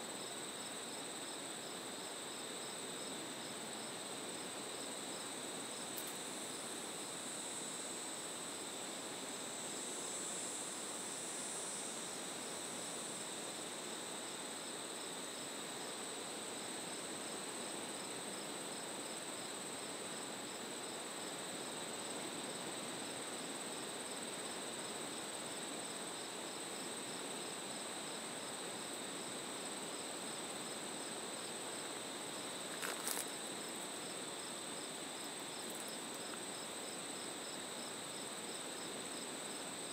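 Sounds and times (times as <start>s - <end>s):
crickets trilling: 0.0s - 39.9s
pulsing insect chirp: 20.8s - 39.9s.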